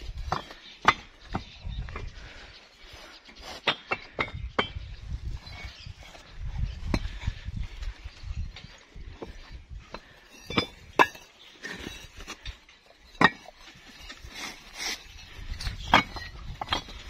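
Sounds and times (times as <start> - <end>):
bricks clinking: 0.1 - 1.4, 9.2 - 17.0.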